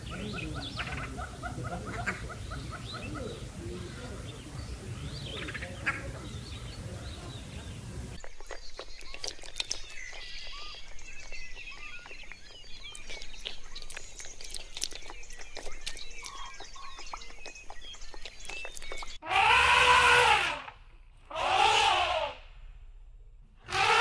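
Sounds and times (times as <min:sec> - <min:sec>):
small birds chirping: 0:00.0 - 0:19.3
animal calls rising and falling: 0:19.2 - 0:22.6, 0:23.6 - 0:24.0.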